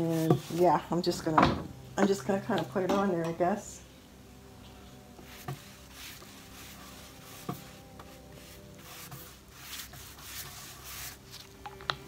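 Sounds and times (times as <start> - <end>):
brush swishing on wood: 0.0 - 0.9, 5.2 - 11.4.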